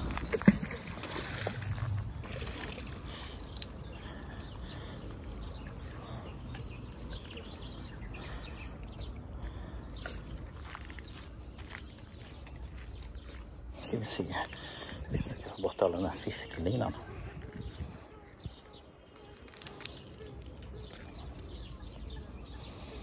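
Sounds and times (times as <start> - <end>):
water trickling and splashing: 0.0 - 14.6.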